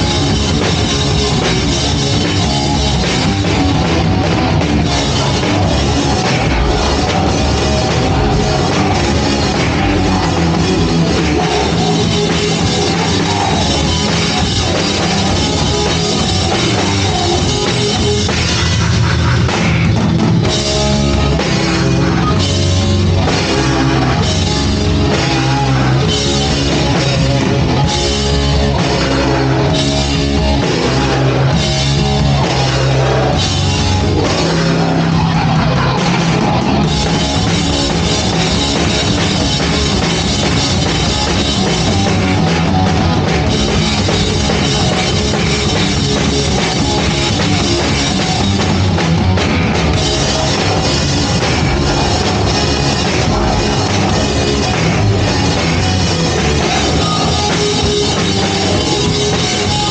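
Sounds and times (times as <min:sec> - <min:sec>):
live punk band: 0:00.0 - 0:59.9.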